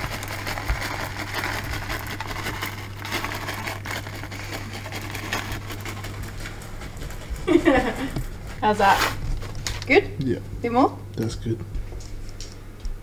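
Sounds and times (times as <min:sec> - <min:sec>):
plastic bag crinkling: 0:00.0 - 0:09.9
steady low hum: 0:00.0 - 0:13.0.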